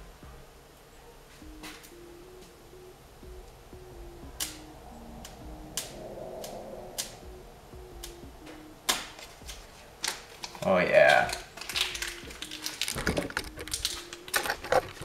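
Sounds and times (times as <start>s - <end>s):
quiet background music: 0.0s - 15.0s
sharp clicks: 4.4s - 7.2s
paper backing rustling: 9.0s - 15.0s.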